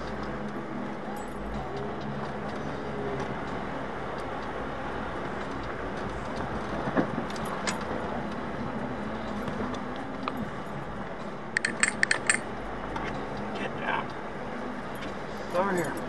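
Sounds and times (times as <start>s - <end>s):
vehicle engine and tyres on gravel: 0.0s - 16.0s
light clicks and rattles: 11.6s - 13.5s.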